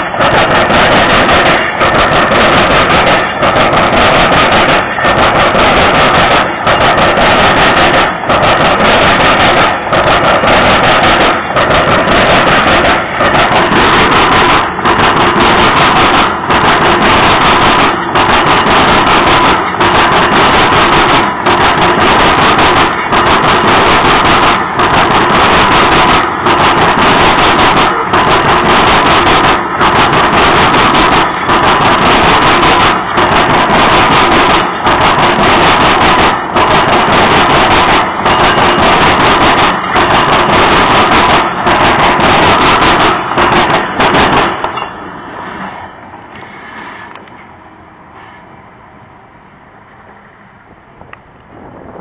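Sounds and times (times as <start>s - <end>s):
train wheels rumbling on rail: 0.0s - 52.0s.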